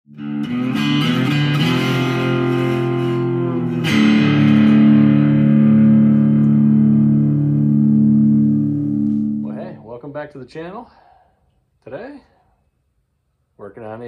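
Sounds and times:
guitar chords ringing: 0.1s - 10.0s.

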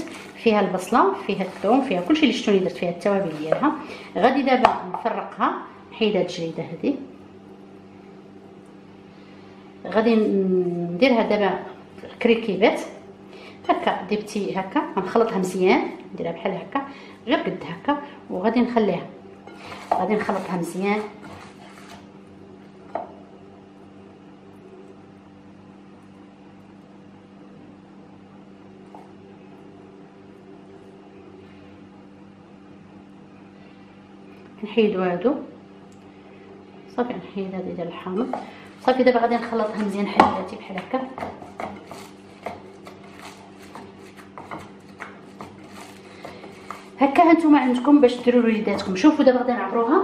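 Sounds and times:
appliance motor humming: 38.0s - 49.4s
meat squishing: 41.3s - 47.2s.

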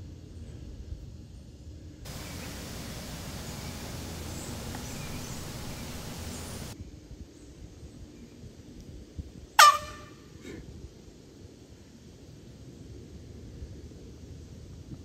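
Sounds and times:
steady hiss: 0.7s - 6.8s
air horn blast: 9.6s - 10.1s.

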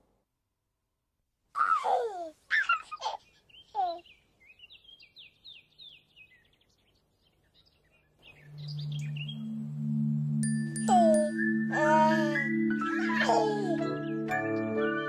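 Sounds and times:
birds chirping: 2.5s - 15.0s
low steady tone of theme music: 8.3s - 15.0s.

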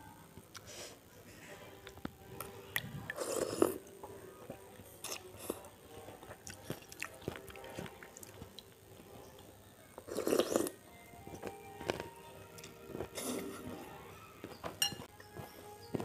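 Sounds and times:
chewing and biting: 5.0s - 9.5s, 10.1s - 16.0s.

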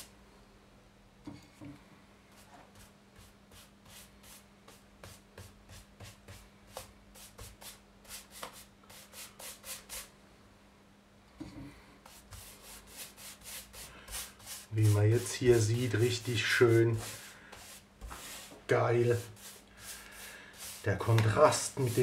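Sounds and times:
paintbrush swishing on wood: 12.0s - 22.0s.

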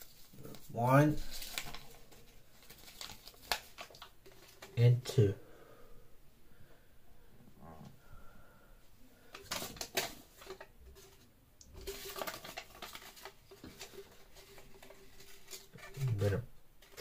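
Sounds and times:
package wrapper crackling rustles: 0.0s - 4.8s, 9.3s - 17.0s.

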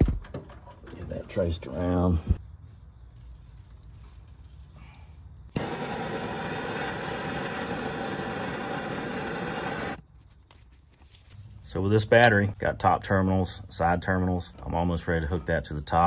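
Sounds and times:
heat gun blowing air: 5.5s - 10.0s.

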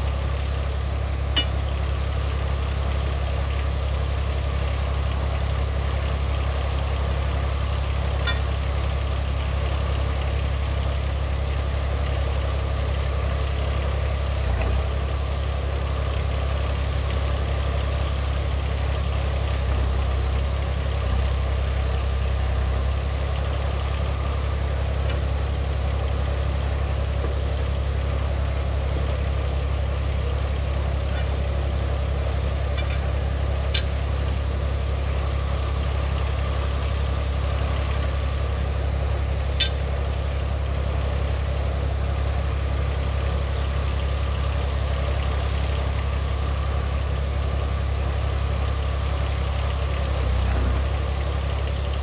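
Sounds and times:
diesel engine idling: 0.0s - 52.0s
pry bar clinking on metal: 8.3s - 8.5s.

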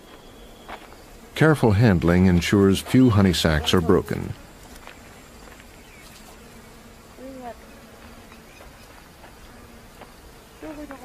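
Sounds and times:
faint steady background noise: 0.0s - 11.0s
flies buzzing past: 0.0s - 11.0s.

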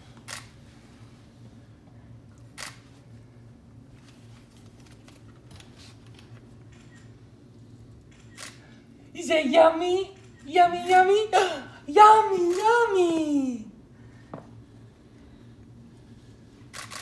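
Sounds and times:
low room hum: 0.0s - 17.0s
camera shutter clicks: 2.6s - 2.8s, 8.1s - 8.6s, 16.7s - 17.0s.

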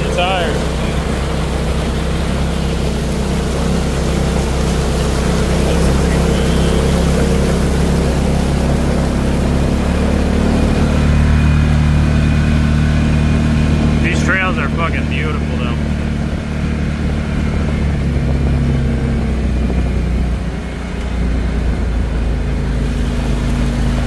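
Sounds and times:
utility vehicle engine running: 0.0s - 24.0s.

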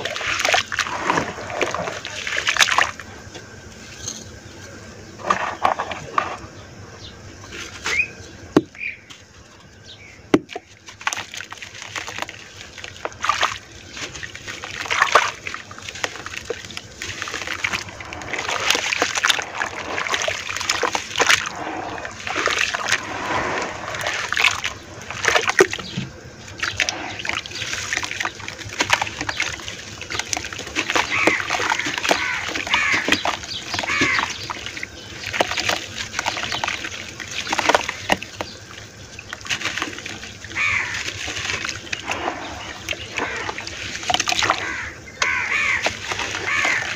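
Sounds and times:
hands sloshing in muddy water: 0.0s - 4.4s, 10.4s - 46.9s
wet dirt crackling: 0.0s - 6.6s, 7.4s - 46.9s.

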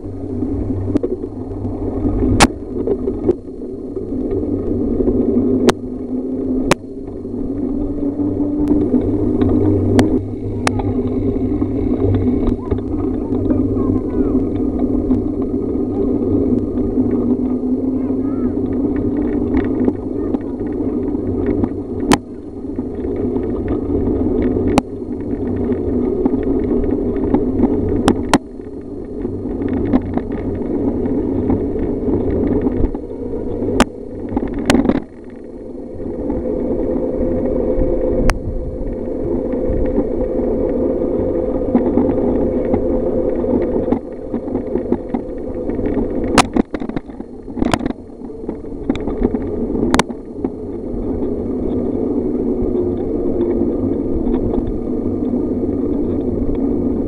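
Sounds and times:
bicycle tyres rumbling on gravel: 0.0s - 57.0s.

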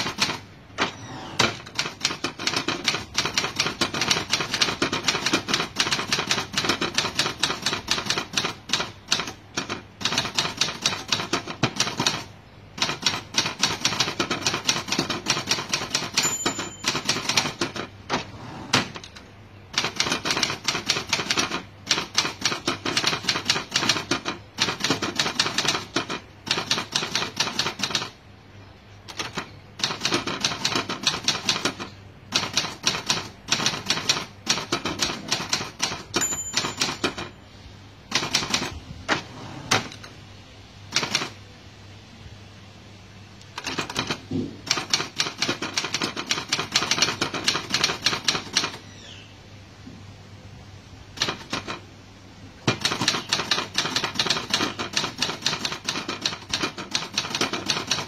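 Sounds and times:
typewriter carriage return: 0.0s - 28.2s, 29.1s - 37.4s, 38.1s - 40.1s, 40.9s - 41.4s, 43.6s - 48.8s, 51.2s - 51.8s, 52.6s - 58.0s
typewriter keys typing: 0.0s - 28.2s, 29.1s - 37.3s, 38.1s - 40.1s, 40.9s - 41.4s, 43.6s - 48.8s, 51.2s - 51.8s, 52.7s - 58.0s
typewriter margin bell: 1.8s - 17.8s, 32.4s - 37.4s.

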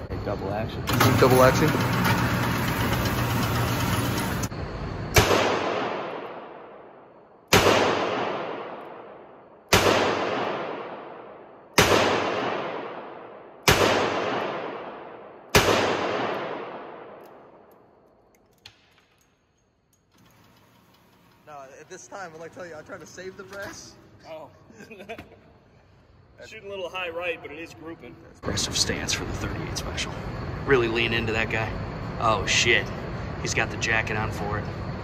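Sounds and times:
revolver shots echoing: 5.1s - 6.9s, 7.5s - 17.6s.

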